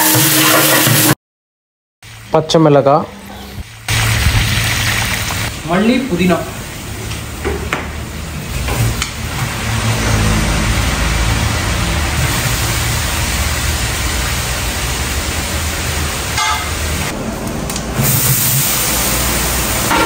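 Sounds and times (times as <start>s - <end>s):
chillies sizzling in hot oil: 2.1s - 7.2s, 12.3s - 17.1s.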